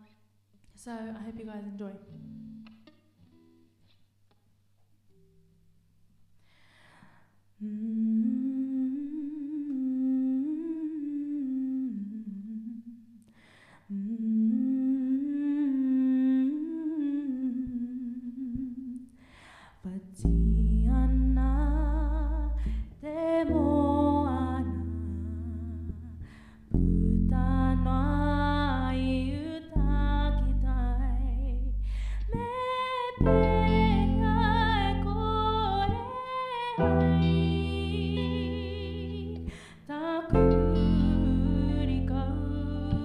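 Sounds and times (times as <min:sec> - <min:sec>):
breaths: 0:06.4 - 0:07.4, 0:13.3 - 0:13.9, 0:19.1 - 0:19.9, 0:22.6 - 0:23.0, 0:26.2 - 0:26.8, 0:31.8 - 0:32.4, 0:39.4 - 0:39.9
woman singing: 0:07.6 - 0:13.1, 0:13.9 - 0:19.1, 0:19.7 - 0:43.0
bass guitar: 0:20.2 - 0:32.6, 0:33.2 - 0:36.2, 0:36.8 - 0:43.0.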